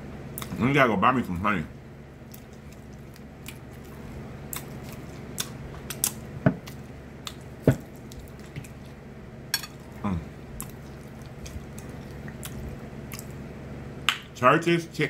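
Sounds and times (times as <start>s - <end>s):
low steady hum: 0.0s - 15.0s
person chewing with wet mouth smacks: 2.2s - 9.0s, 9.8s - 13.4s.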